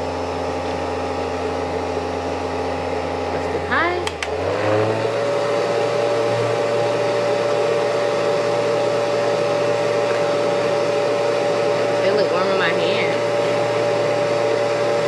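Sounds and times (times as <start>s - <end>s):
hair dryer motor whine: 0.0s - 15.0s
switch clicks: 4.0s - 4.4s.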